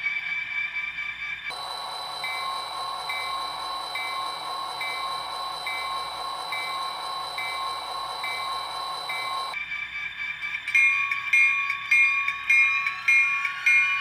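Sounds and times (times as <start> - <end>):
locomotive bell ringing: 1.5 - 9.6.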